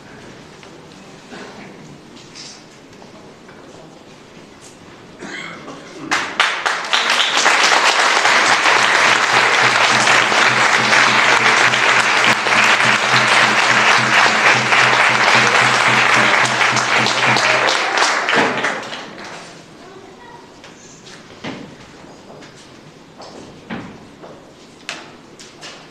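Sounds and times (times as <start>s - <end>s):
audience applauding: 6.1s - 19.4s.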